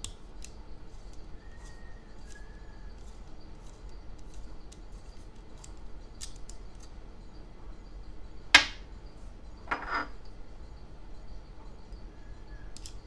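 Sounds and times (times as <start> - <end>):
metal piece clinking on table: 8.6 - 8.8, 9.6 - 10.2
metal piece clattering: 9.7 - 10.2.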